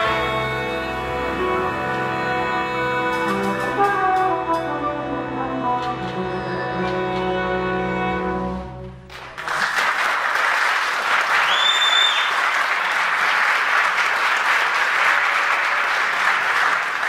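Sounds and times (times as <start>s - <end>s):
audience applauding: 9.1s - 17.0s.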